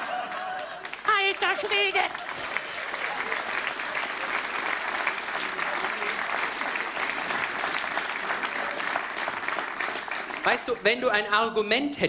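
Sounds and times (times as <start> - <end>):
audience laughter: 0.0 - 0.9
audience applauding: 0.0 - 11.1.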